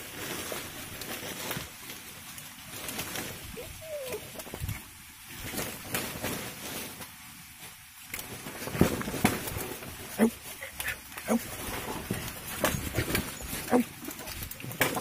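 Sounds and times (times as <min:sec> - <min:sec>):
undergrowth crackling and rustling: 0:00.0 - 0:15.0
porcupine grunting: 0:10.0 - 0:14.3.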